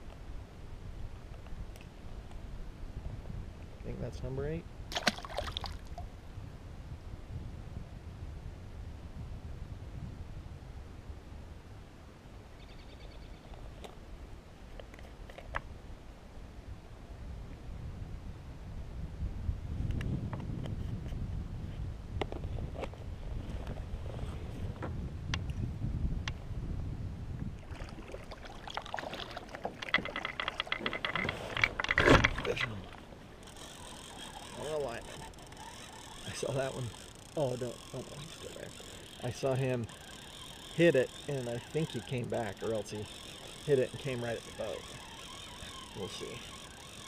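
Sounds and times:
low wind rumble: 0.0s - 14.8s, 15.6s - 47.0s
fishing reel clicking: 29.8s - 47.0s
rapid faint ticking: 29.8s - 47.0s
thin steady whine: 30.0s - 47.0s.

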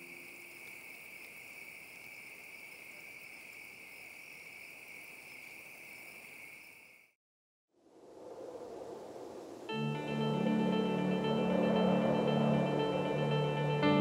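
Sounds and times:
insects buzzing: 0.0s - 7.1s.

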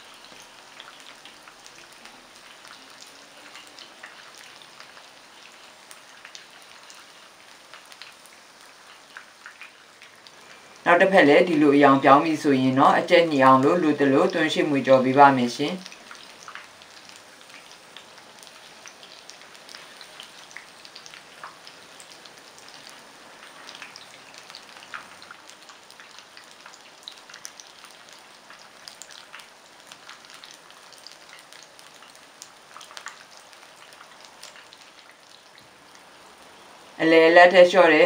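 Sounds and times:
food deep-frying in hot oil: 0.0s - 38.0s.

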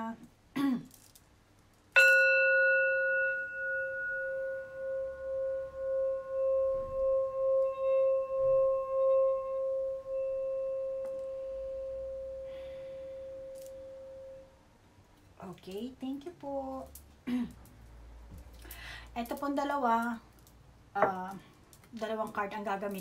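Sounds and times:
mallet circling singing bowl rim: 2.0s - 12.5s
singing bowl struck with mallet: 2.0s - 12.5s.

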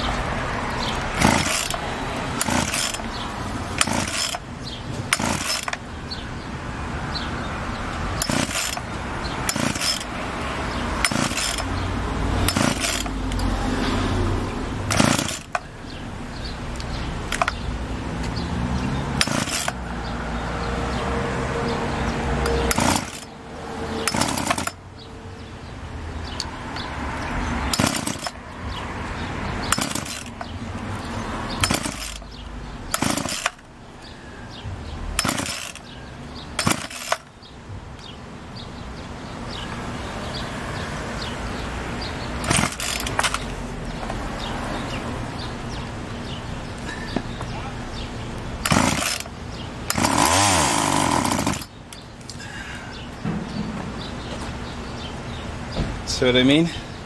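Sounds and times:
chainsaw starter cord pulls: 0.8s - 3.2s, 3.8s - 4.4s, 5.1s - 5.8s, 8.2s - 8.9s, 9.5s - 10.1s, 11.0s - 11.8s, 12.4s - 13.5s, 14.9s - 15.7s, 17.3s - 17.6s, 19.2s - 19.8s, 22.4s - 23.3s, 24.0s - 24.8s, 27.7s - 28.4s, 29.7s - 30.5s, 31.6s - 32.2s, 32.9s - 33.6s, 35.2s - 35.9s, 36.6s - 37.3s, 42.4s - 43.5s, 48.6s - 49.3s, 49.9s - 51.7s
chainsaw engine turning over: 0.8s - 4.4s, 5.1s - 5.8s, 8.2s - 10.2s, 11.0s - 11.8s, 12.4s - 13.6s, 14.8s - 15.7s, 16.7s - 17.6s, 19.1s - 19.8s, 22.4s - 23.4s, 24.0s - 24.8s, 27.7s - 28.4s, 29.6s - 30.5s, 31.6s - 33.7s, 35.2s - 36.0s, 36.6s - 37.3s, 42.4s - 43.6s, 48.6s - 51.8s.

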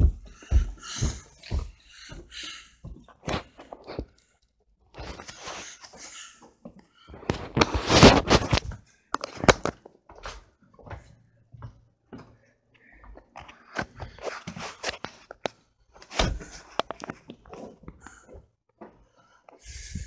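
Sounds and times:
camera rubbing noise: 7.2s - 8.7s.

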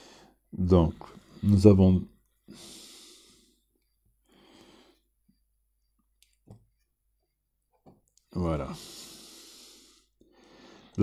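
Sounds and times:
soft breaths: 0.0s - 6.0s, 8.2s - 11.0s.

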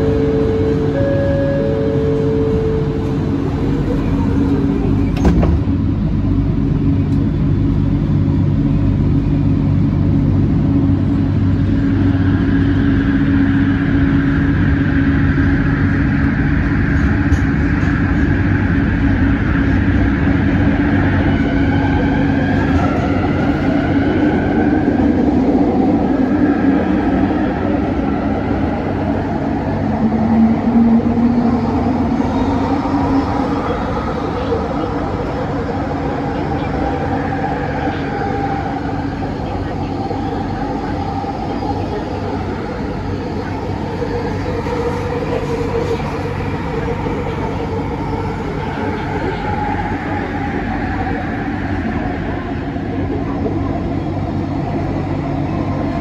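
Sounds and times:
rising motor tone: 0.0s - 4.9s
train electric hum: 0.0s - 56.0s.

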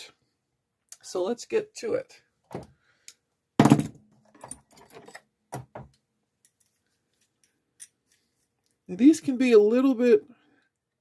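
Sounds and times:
metal tools clicking and knocking: 3.6s - 5.8s.

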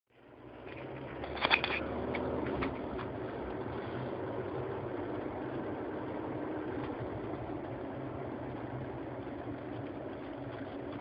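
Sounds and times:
car engine and road noise: 0.1s - 11.0s.

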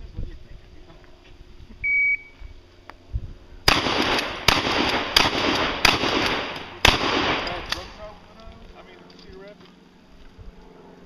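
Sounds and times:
shot timer beep: 1.9s - 2.4s
gunshots at steel targets: 3.7s - 8.0s.

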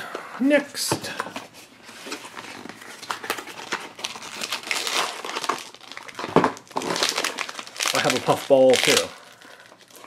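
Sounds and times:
foil bag crinkling: 2.6s - 10.0s.

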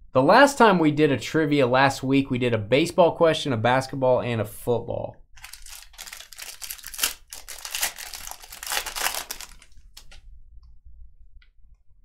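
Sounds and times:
wrapper tearing and crinkling: 5.4s - 10.2s.

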